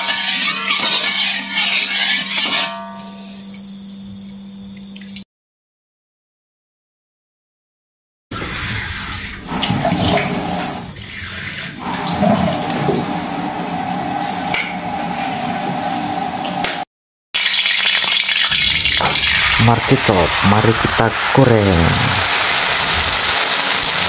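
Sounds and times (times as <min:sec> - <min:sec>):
tap water running: 0:08.4 - 0:16.8, 0:17.4 - 0:24.0
hot oil sizzling in a wok: 0:17.4 - 0:24.0.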